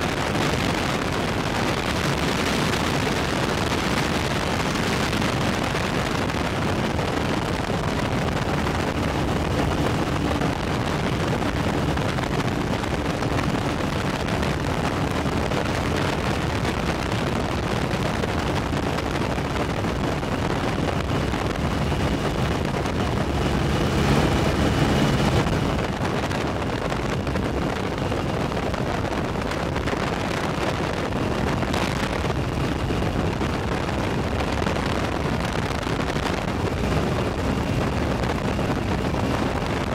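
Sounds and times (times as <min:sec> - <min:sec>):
aircraft engine drone: 0:00.0 - 0:30.5
wind buffeting microphone: 0:00.0 - 0:39.9.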